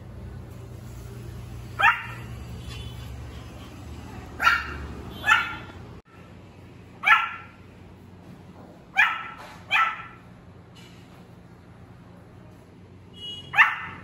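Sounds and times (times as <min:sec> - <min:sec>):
puppy barking: 0:01.8 - 0:02.4, 0:04.1 - 0:05.8, 0:07.0 - 0:07.6, 0:08.9 - 0:10.2, 0:13.5 - 0:14.0.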